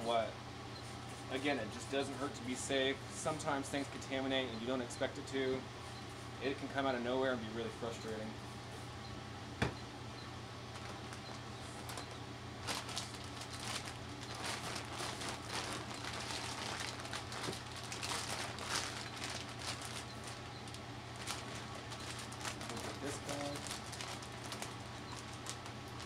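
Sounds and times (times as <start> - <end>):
steady fan hum: 0.0 - 26.0
plastic bag crinkling: 10.7 - 26.0.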